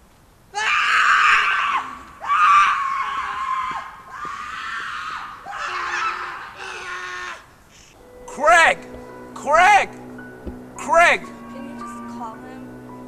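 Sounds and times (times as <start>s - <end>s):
person screaming: 0.6s - 7.5s.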